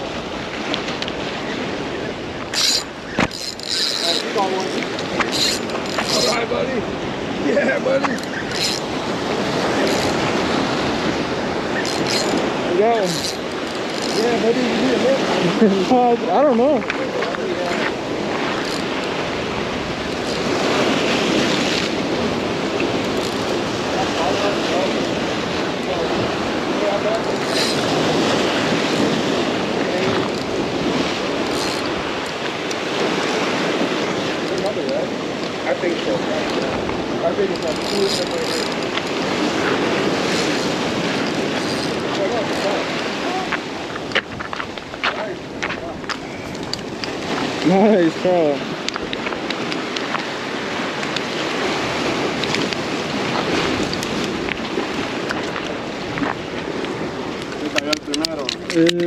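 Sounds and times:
waves washing against jetty: 0.0s - 59.0s
wind buffeting microphone: 0.0s - 59.0s
faint ticks: 43.5s - 47.7s.

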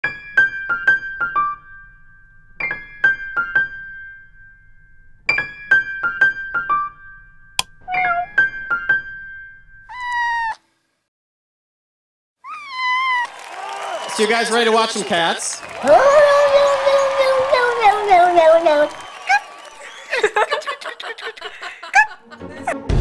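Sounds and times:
cat meowing: 7.9s - 8.4s, 9.9s - 10.6s, 12.4s - 13.3s.

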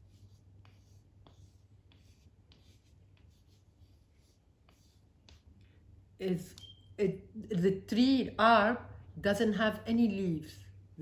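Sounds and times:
pencil scratching strokes: 0.0s - 5.6s
low steady hum: 0.0s - 11.0s.

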